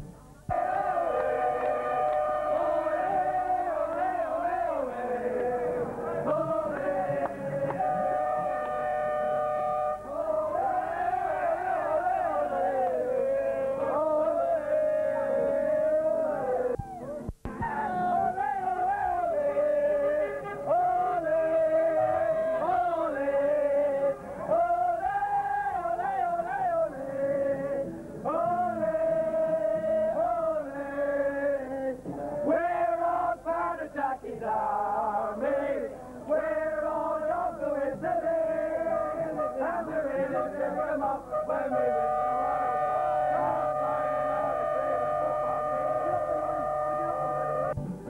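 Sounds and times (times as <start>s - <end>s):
men singing: 0.5s - 8.6s, 10.2s - 16.8s, 17.6s - 44.8s.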